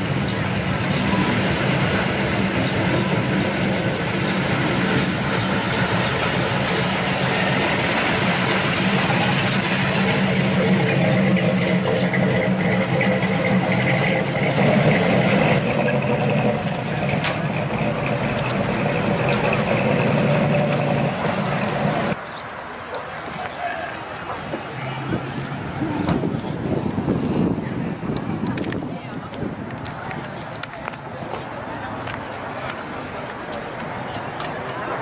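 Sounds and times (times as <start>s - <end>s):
car engine running: 0.0s - 22.2s.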